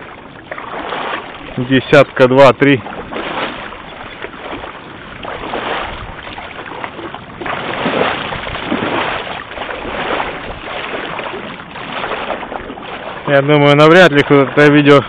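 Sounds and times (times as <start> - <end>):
water sloshing and splashing: 0.0 - 15.0.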